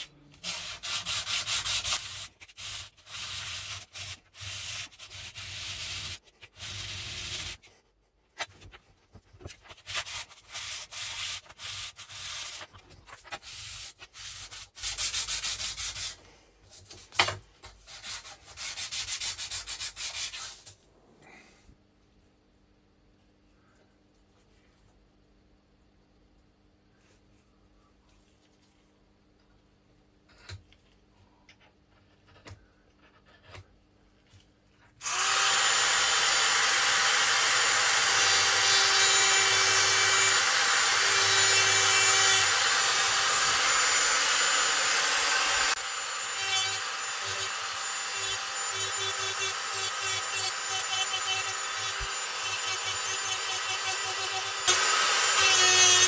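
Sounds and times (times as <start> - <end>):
rotary tool cutting steel: 35.0 - 56.0.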